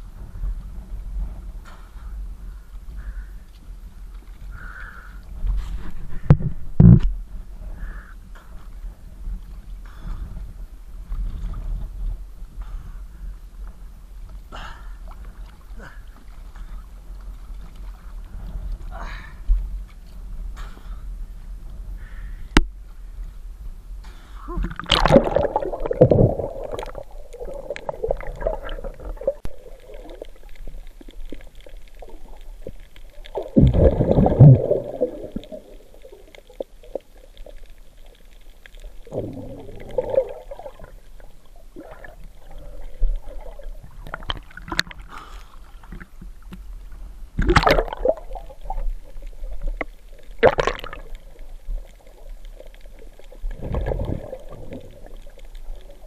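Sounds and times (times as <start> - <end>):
water gurgling and sloshing: 0.0 - 12.8, 13.6 - 56.0
low steady rumble: 0.0 - 56.0
sharp water splashes: 24.6 - 31.3, 33.3 - 36.3, 47.4 - 51.8.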